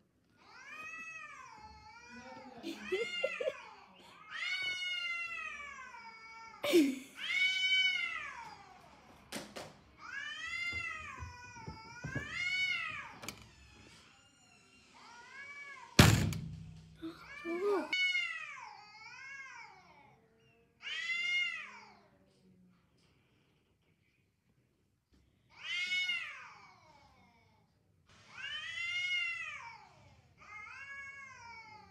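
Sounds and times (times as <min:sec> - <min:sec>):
cats yowling: 0:00.5 - 0:06.6, 0:07.2 - 0:08.9, 0:20.8 - 0:22.0, 0:25.5 - 0:27.0, 0:28.3 - 0:31.9.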